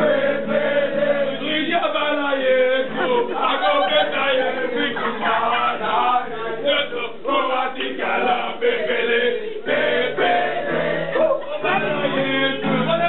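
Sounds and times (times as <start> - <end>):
group of voices chanting: 2.8 - 12.9.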